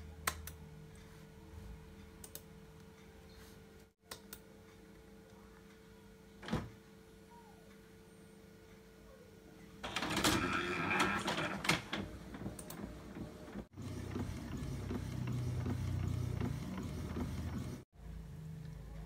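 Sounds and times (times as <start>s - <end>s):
printer mechanical hum with ticks: 9.8s - 17.9s
printer whirring and clicking: 9.8s - 17.9s.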